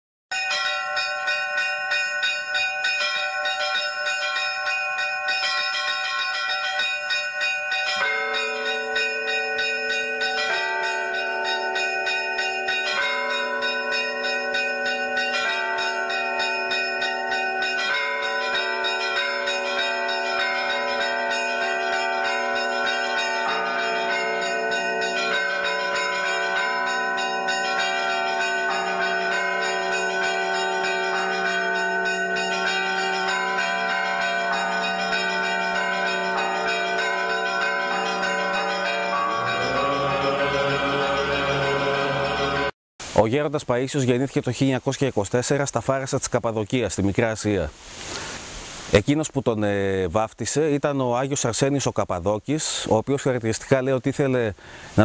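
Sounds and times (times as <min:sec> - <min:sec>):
bells ringing in a peal: 0:00.3 - 0:42.7.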